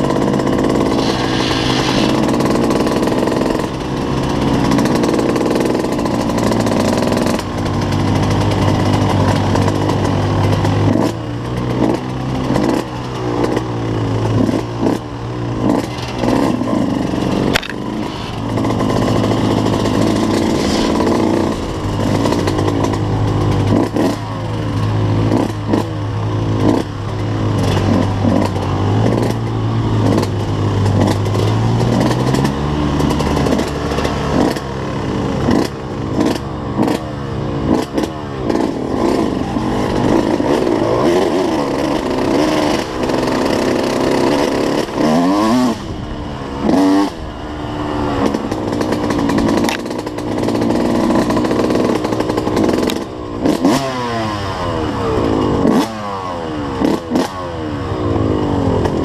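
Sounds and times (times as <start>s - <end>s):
dirt bike engine revving: 0.0s - 59.0s
bike knocks and rattles: 2.2s - 34.7s.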